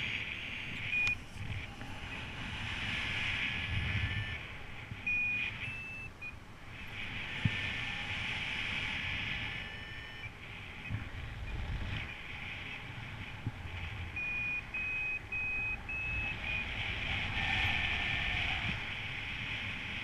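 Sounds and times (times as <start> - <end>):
variometer beeping: 0.0 - 2.4, 3.6 - 6.4, 9.4 - 12.3, 14.1 - 17.0
airflow and wind on microphone: 0.0 - 20.0.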